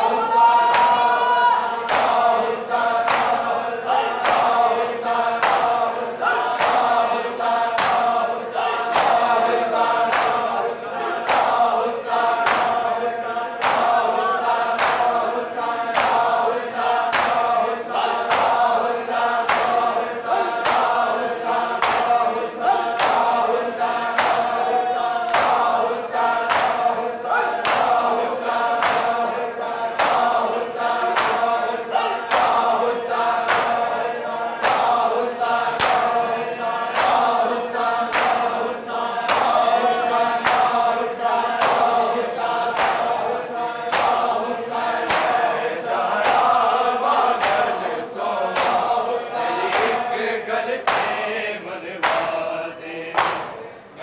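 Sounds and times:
men chanting a lament: 0.0s - 54.0s
hands slapping bare chests: 1.9s - 2.3s, 3.0s - 3.4s, 4.2s - 4.6s, 5.4s - 5.8s, 6.6s - 7.0s, 8.9s - 9.3s, 10.1s - 10.5s, 11.3s - 11.6s, 12.4s - 12.8s, 13.6s - 14.0s, 15.9s - 16.3s, 17.1s - 17.4s, 18.3s - 18.6s, 19.5s - 19.8s, 24.2s - 24.5s, 25.3s - 25.7s, 26.5s - 26.9s, 27.6s - 28.0s, 28.8s - 29.1s, 30.0s - 30.4s, 35.8s - 36.1s, 42.8s - 43.2s, 43.9s - 44.2s, 45.1s - 45.4s, 53.2s - 53.5s.

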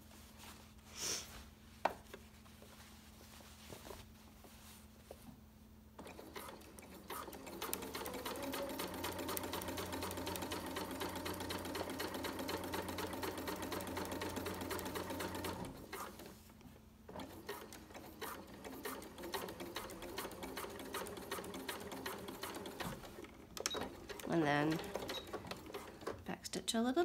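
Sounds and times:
sewing machine stitching: 6.0s - 16.3s, 17.1s - 26.3s.

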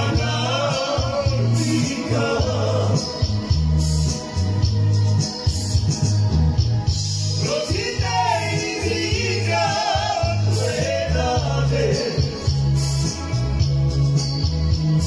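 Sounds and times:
men singing: 0.0s - 3.5s, 7.4s - 12.8s
bass line: 0.0s - 15.0s
shaker-like percussion: 0.0s - 15.0s.

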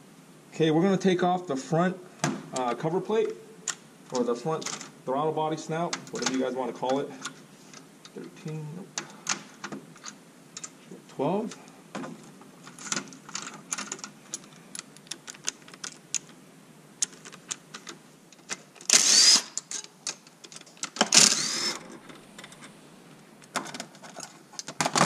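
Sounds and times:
cordless drill whining: 18.9s - 19.6s, 21.1s - 22.0s.

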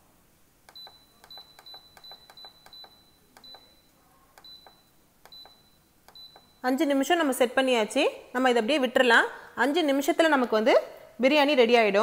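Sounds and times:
button clicks: 0.7s - 3.8s, 4.4s - 6.6s
pressure cooker beeps: 0.7s - 6.8s.

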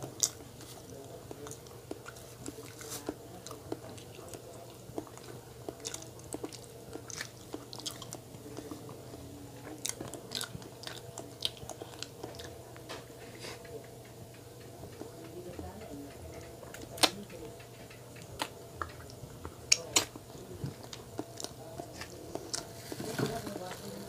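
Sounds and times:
steady low hum: 0.0s - 24.0s
chewing mouth sounds: 3.4s - 12.6s.

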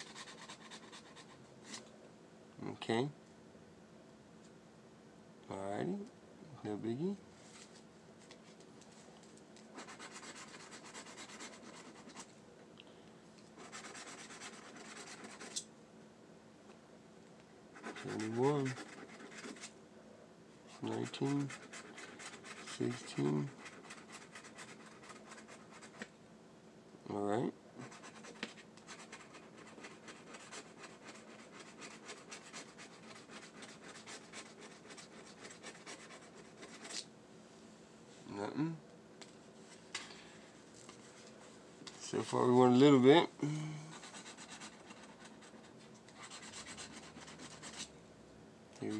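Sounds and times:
lottery ticket being scratched: 9.7s - 12.3s, 13.6s - 15.6s, 17.8s - 19.7s, 20.8s - 26.0s, 27.8s - 37.0s, 43.9s - 47.9s.

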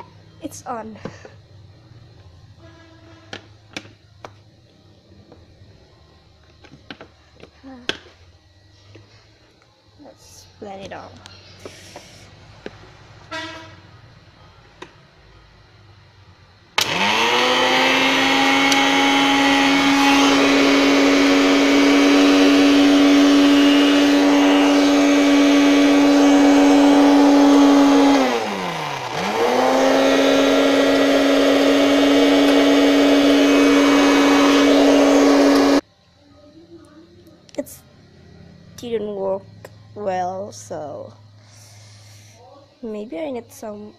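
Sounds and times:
electric blender whirring: 16.8s - 35.8s.

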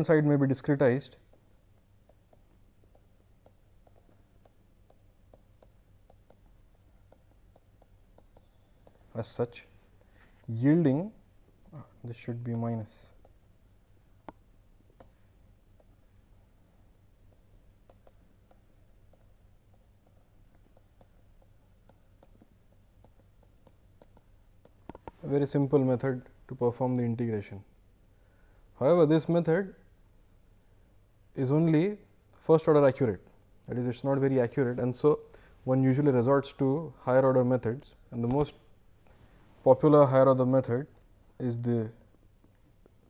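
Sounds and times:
low steady hum: 0.0s - 43.0s
stylus tapping on tablet screen: 1.2s - 9.1s, 13.1s - 13.4s, 14.2s - 16.0s, 17.2s - 25.2s.

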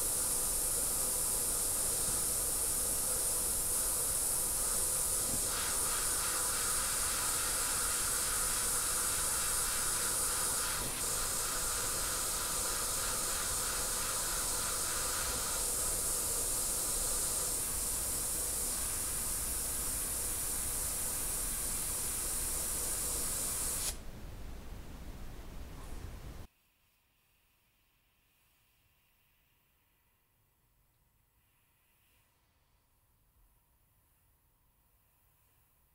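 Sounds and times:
airbrush hissing: 0.0s - 24.0s.

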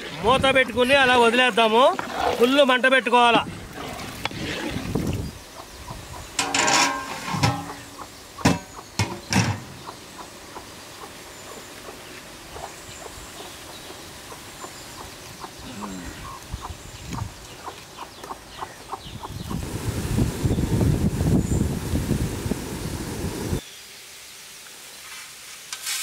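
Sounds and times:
metal lid scraping on pot: 6.4s - 9.7s
metal lid clanking: 6.4s - 9.8s.

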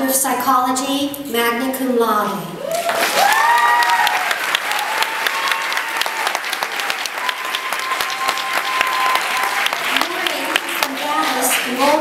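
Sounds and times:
people cheering: 2.6s - 12.0s
audience applauding: 2.7s - 12.0s.

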